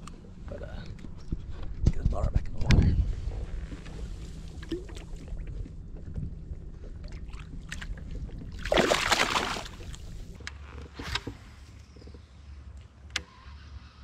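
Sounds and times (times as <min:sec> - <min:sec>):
fish splashing into water: 0:08.6 - 0:10.4.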